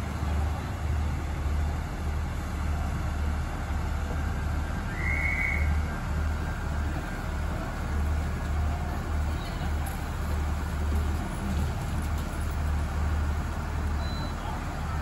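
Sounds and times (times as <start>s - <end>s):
diesel train engine idling: 0.0s - 15.0s
high whistle-like tone: 4.9s - 5.8s.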